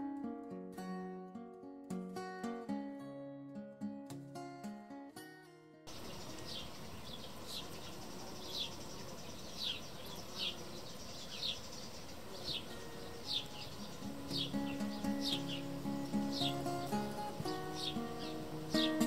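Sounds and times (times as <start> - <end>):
outdoor ambience: 0.0 - 19.0
bird chirping: 5.9 - 19.0.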